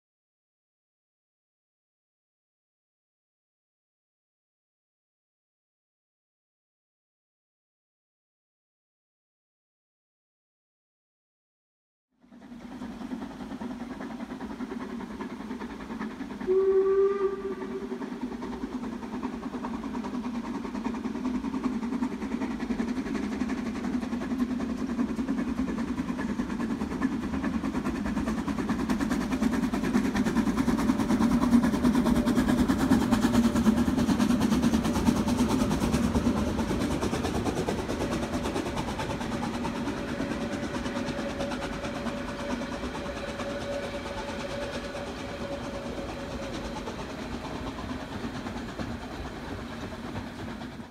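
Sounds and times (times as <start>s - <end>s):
steam locomotive working hard: 12.2s - 50.9s
steam whistle blast: 16.4s - 18.0s, 40.0s - 46.8s.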